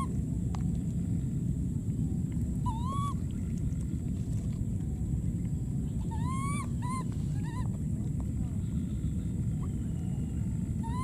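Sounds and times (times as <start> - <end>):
baby monkey crying: 2.6 - 3.2, 6.0 - 7.7, 10.8 - 11.0.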